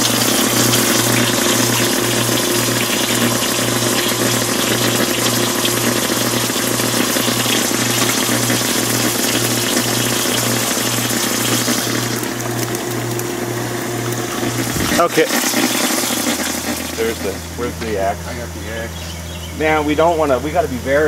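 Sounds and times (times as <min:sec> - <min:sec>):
radio throbbing low hum: 0:17.0 - 0:21.0.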